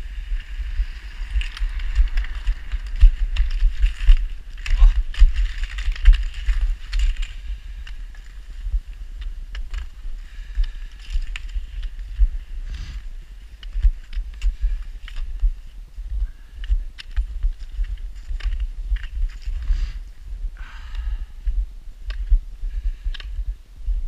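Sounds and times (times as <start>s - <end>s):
footsteps on snow and slush: 0.0s - 15.8s
low camera rumble: 0.0s - 24.0s.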